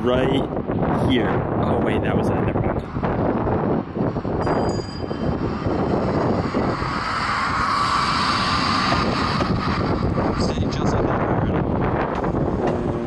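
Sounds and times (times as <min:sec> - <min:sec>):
wind buffeting microphone: 0:00.0 - 0:13.0
passing engine drone: 0:03.5 - 0:13.0.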